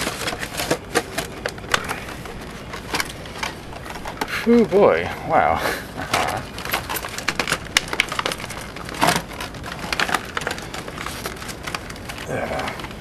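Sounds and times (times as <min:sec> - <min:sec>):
plastic packaging crinkling: 0:00.0 - 0:05.1, 0:06.1 - 0:13.0.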